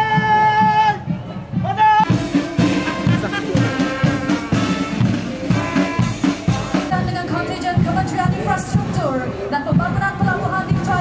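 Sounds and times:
snare and bass drums: 0:00.0 - 0:11.0
brass playing march: 0:01.7 - 0:07.9.

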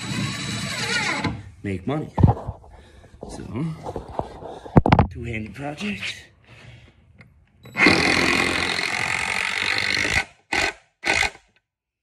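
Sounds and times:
power drill driving screw into wood: 0:00.0 - 0:01.4, 0:07.6 - 0:11.6.

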